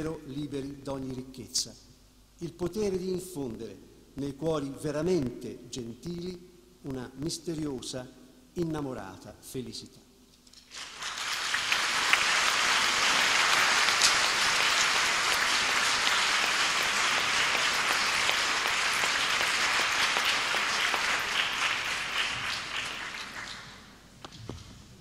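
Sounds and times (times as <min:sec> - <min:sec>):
audience applauding: 0:10.7 - 0:24.0.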